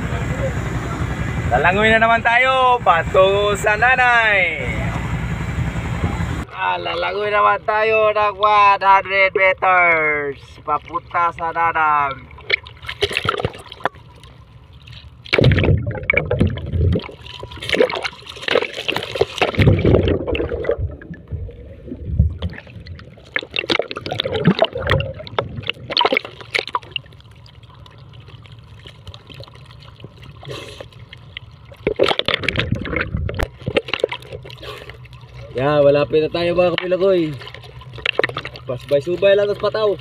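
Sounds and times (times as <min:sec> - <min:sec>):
water splashing from swimming: 0:08.6 - 0:40.0.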